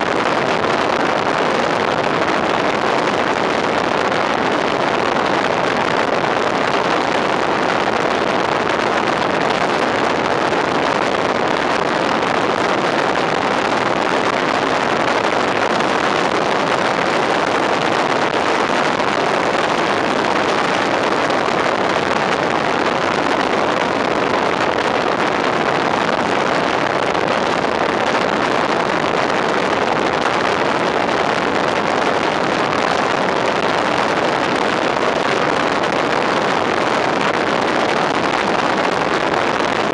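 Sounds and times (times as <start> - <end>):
wind rush: 0.0 - 39.9.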